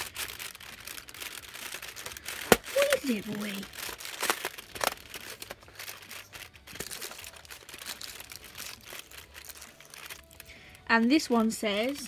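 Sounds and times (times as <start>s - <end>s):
cardboard tearing and crinkling: 0.0s - 10.6s.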